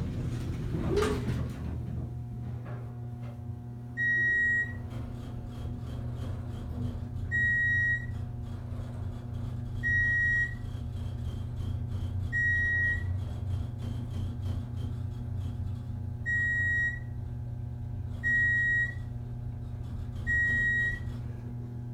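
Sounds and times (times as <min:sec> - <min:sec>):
elevator humming: 0:00.0 - 0:11.3, 0:16.1 - 0:21.9.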